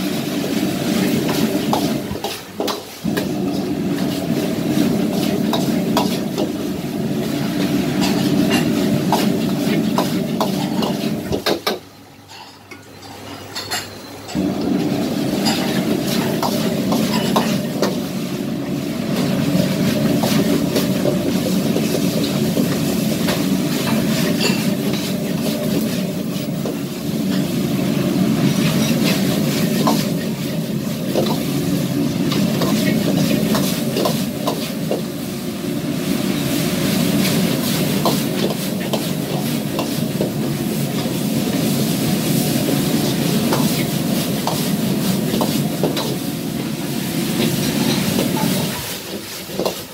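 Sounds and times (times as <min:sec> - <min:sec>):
food sizzling in a wok: 0:00.0 - 0:11.8, 0:14.4 - 0:49.9
gas burner roar: 0:00.0 - 0:11.9, 0:14.2 - 0:49.9.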